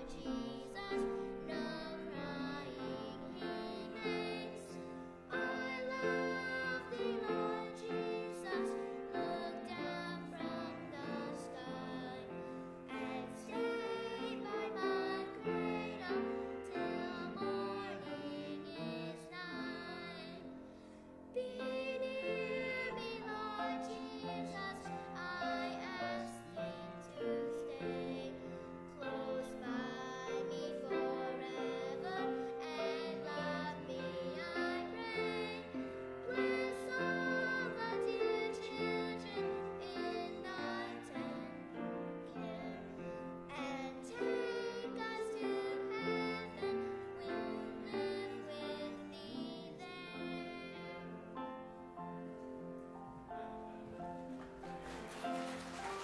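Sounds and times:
girl singing: 0.0 - 20.7, 21.3 - 51.3.

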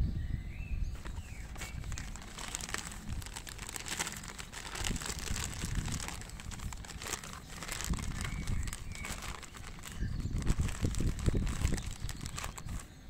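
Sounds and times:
plastic bag crinkling: 1.0 - 12.9.

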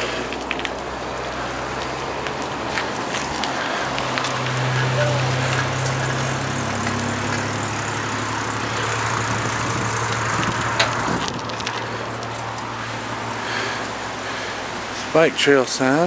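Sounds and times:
bicycle tyre noise on pavement: 0.0 - 16.0
wind rushing: 3.8 - 12.1.

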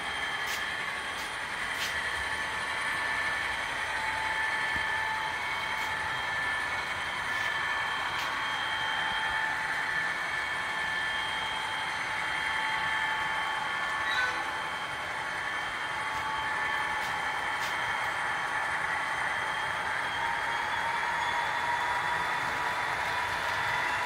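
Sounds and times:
high whine: 0.0 - 24.0
model train cars rolling: 0.0 - 24.0.

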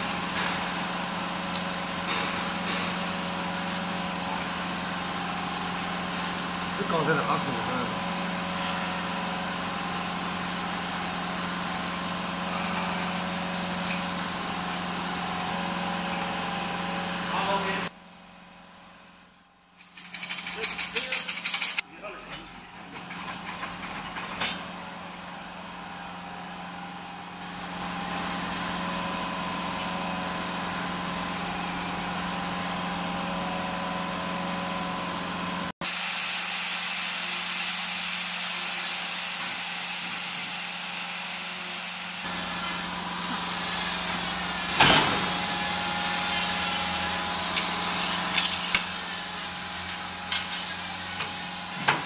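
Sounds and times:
machine humming with hiss: 35.8 - 52.0.

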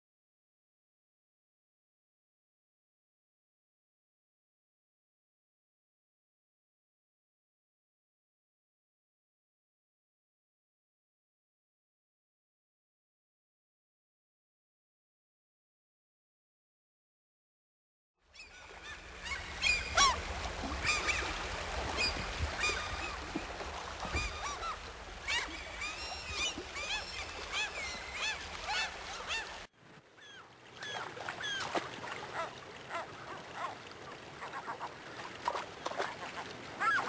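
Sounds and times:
water birds honking: 18.4 - 37.0.

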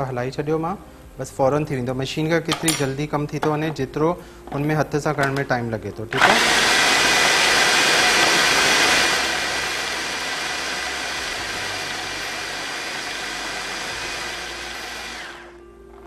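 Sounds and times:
food processor whirring: 6.1 - 15.6.

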